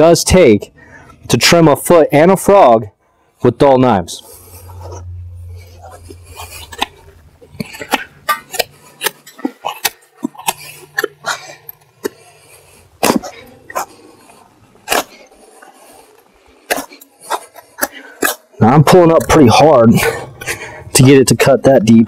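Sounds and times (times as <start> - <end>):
knife scraping hoof: 4.2 - 18.5.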